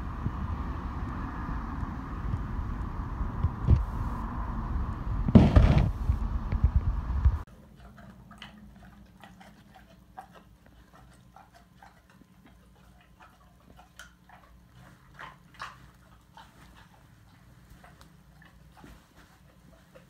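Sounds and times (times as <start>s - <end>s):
dog snuffling and sniffing: 7.6s - 20.0s.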